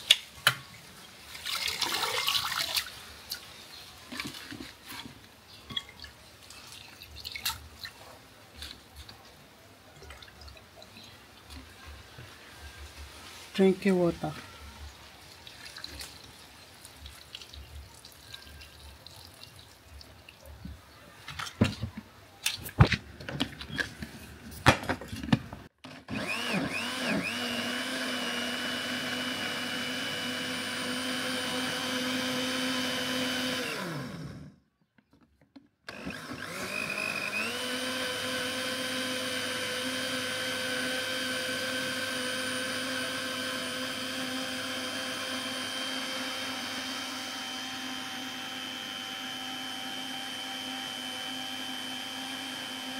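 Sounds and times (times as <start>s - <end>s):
blender motor whining: 25.9s - 34.6s, 35.9s - 52.9s.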